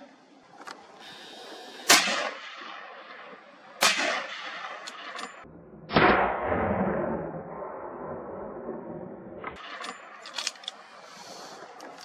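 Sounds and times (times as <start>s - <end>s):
gunshots: 1.9s - 7.8s.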